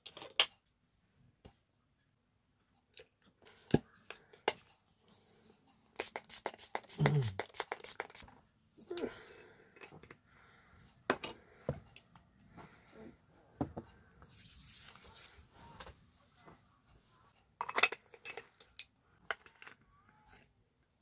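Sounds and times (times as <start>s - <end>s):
lotion rubbed into skin: 6.0s - 8.2s, 14.3s - 15.5s.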